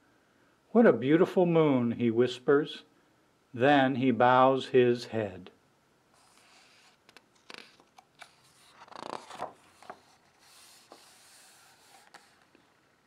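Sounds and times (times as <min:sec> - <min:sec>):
book page turning: 0:06.2 - 0:12.8.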